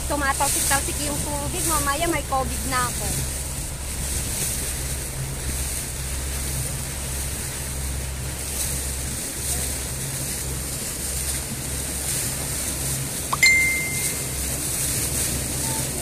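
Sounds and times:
motorboat engine humming: 0.0 - 16.0
wind and water rushing: 0.0 - 16.0
short high beep: 13.4 - 14.4.

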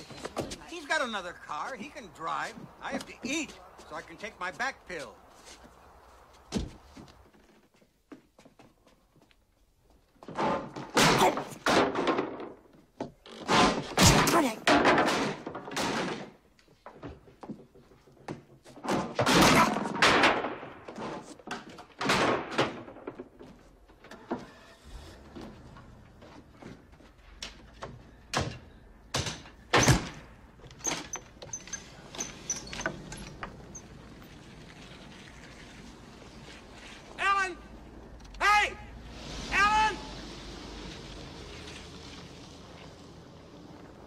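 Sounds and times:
shuffling and rustling: 0.0 - 10.3
wood thuds and knocks: 6.5 - 8.2, 10.2 - 24.5.

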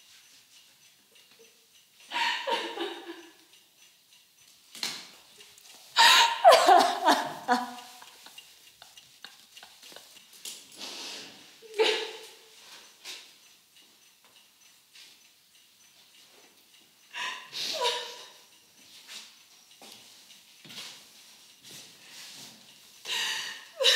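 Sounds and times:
women sobbing and crying: 2.1 - 3.2, 6.0 - 8.3, 11.6 - 12.4, 17.2 - 18.4, 23.1 - 23.9.

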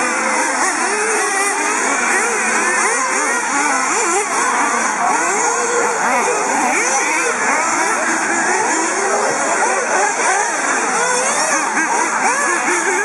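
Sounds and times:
rc buggy engines revving: 0.0 - 13.0.

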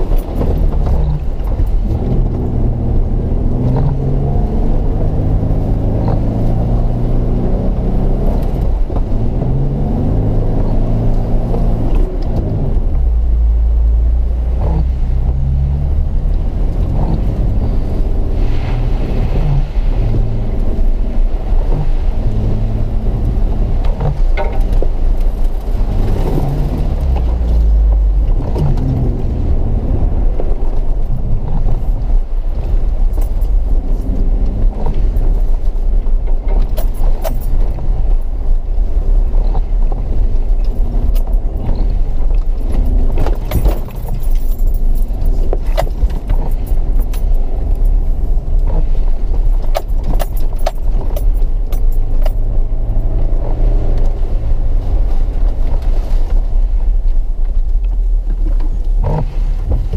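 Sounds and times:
clicks and knocks from vehicle body: 0.0 - 2.5, 23.2 - 29.5, 30.4 - 38.2, 39.4 - 54.2, 57.1 - 59.9
low engine rumble: 0.0 - 59.9.

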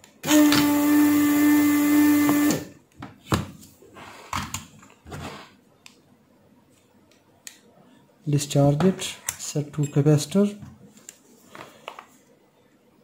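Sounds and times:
vacuum pump hum and hiss: 0.2 - 2.7.

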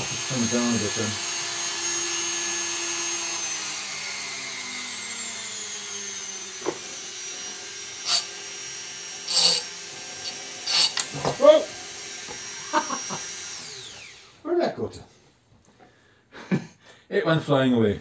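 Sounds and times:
rotary multitool whine: 0.0 - 14.4.

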